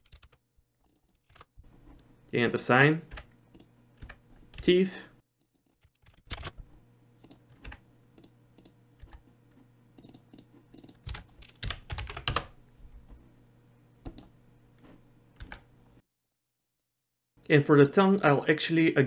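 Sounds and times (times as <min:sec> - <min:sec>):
keyboard typing: 0:00.0 - 0:01.6, 0:03.0 - 0:04.7, 0:05.4 - 0:09.2, 0:10.0 - 0:12.5.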